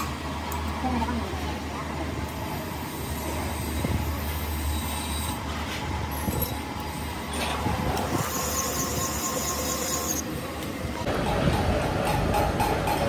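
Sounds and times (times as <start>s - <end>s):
metal cutting noise: 6.1s - 10.4s
high metallic squeal: 8.1s - 10.3s.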